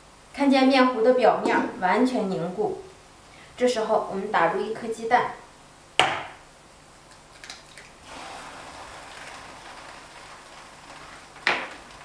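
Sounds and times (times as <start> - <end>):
eggshell cracking clicks: 7.1 - 8.0
egg sizzling in pan: 7.8 - 12.0.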